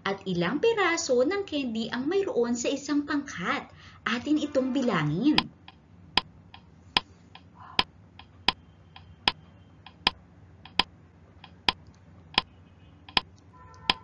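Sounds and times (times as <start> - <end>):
sharp clicks: 5.4 - 12.5, 13.1 - 14.0.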